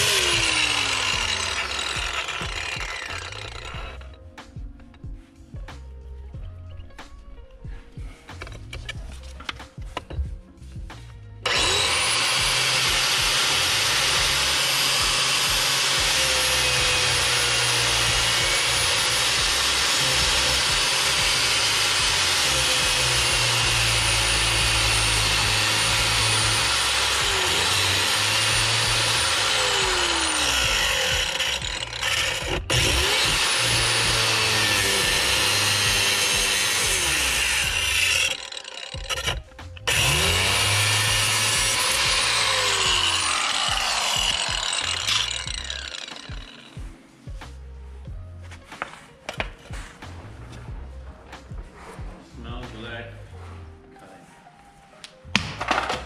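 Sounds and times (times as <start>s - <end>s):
angle grinder cutting steel: 0.0s - 4.2s, 11.4s - 46.8s.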